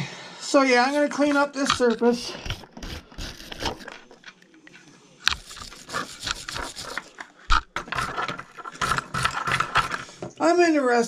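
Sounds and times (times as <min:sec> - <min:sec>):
wire brush scrubbing metal: 0:05.3 - 0:07.2.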